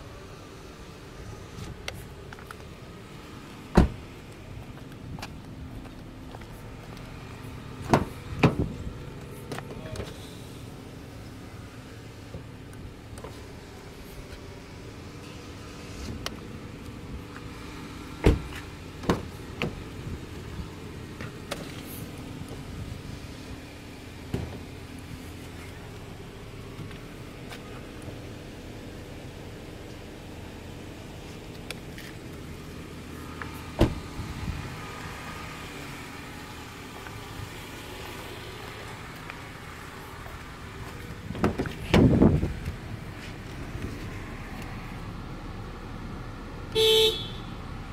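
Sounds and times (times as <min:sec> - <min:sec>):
running car hum: 0:00.0 - 0:47.9
car door clunk: 0:03.7 - 0:04.1, 0:07.8 - 0:08.8, 0:18.2 - 0:19.8, 0:33.7 - 0:34.1, 0:41.2 - 0:42.6.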